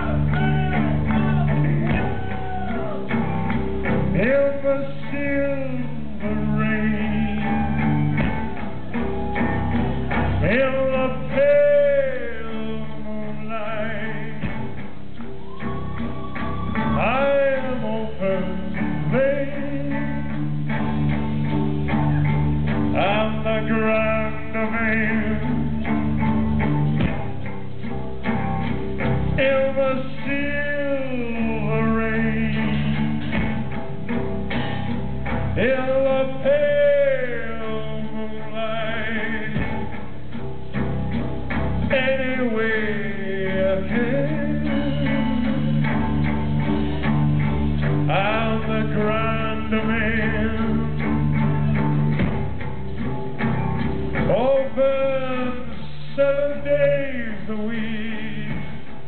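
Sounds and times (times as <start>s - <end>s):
man singing: 0.0s - 3.2s, 3.8s - 8.0s, 10.2s - 14.8s, 16.5s - 20.8s, 22.9s - 26.3s, 29.2s - 33.4s, 35.5s - 40.0s, 41.8s - 46.3s, 47.8s - 51.9s, 54.2s - 59.0s
drums: 0.0s - 59.0s
electric guitar: 0.0s - 59.0s.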